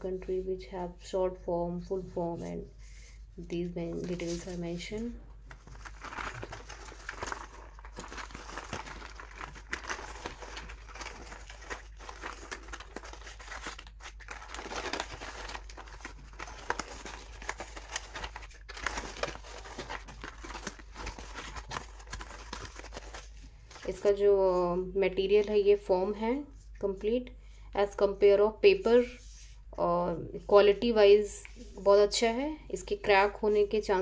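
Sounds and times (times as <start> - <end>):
packaging rustling: 4.0 - 24.2.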